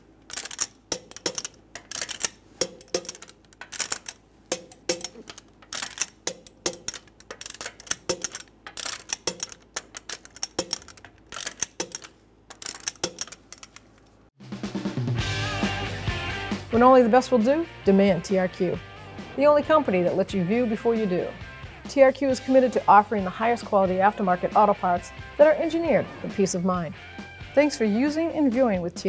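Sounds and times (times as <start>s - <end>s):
torque wrench metallic clicks: 0.3s - 13.9s.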